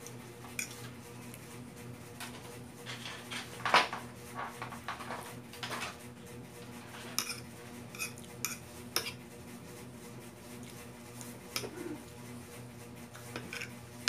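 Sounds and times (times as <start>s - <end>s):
fork scraping ceramic plate: 0.5s - 1.0s, 6.7s - 9.2s, 11.5s - 12.1s, 13.2s - 13.8s.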